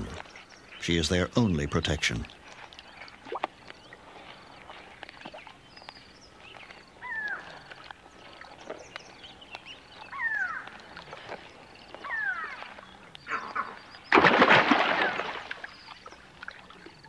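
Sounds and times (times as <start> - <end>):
faint ticks and chirps: 0.0 - 14.1
crocodile hatchlings calling: 7.0 - 7.7, 9.7 - 16.2.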